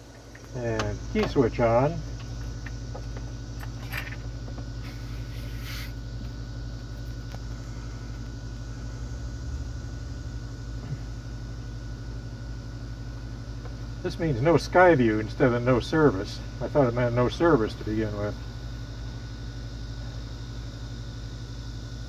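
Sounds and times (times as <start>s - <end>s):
electrical hum and whir: 0.0s - 22.0s
faint high whine: 0.0s - 22.0s.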